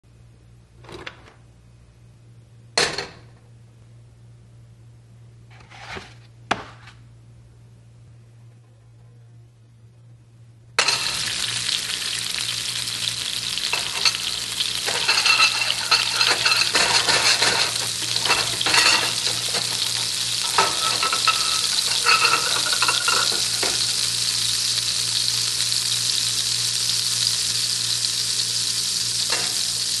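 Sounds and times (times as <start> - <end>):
frying sizzle in skillet: 10.8 - 30.0.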